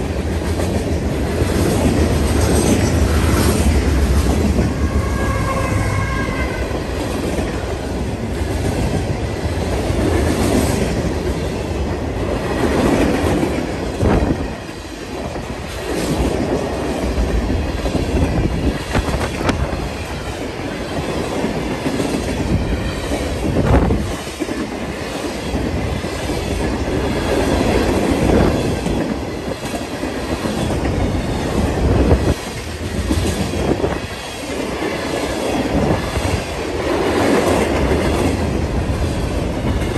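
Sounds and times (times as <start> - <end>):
locomotive passing: 0.0 - 39.9.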